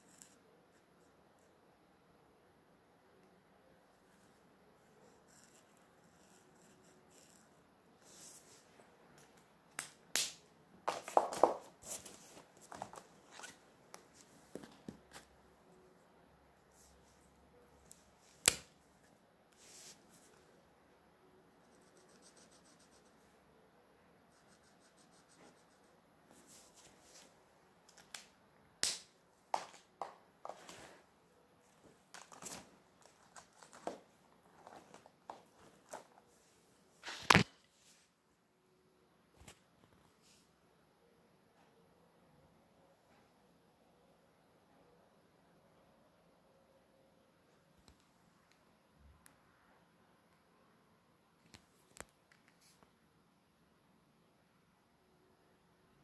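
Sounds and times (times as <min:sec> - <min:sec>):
paper rustling: 0:31.8 - 0:36.2.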